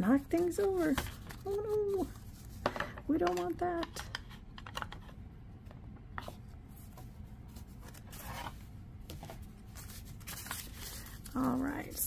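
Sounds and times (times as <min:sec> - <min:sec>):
ink pad scraping paper: 0:00.0 - 0:02.5
papers rustling: 0:00.0 - 0:04.1, 0:06.2 - 0:12.0.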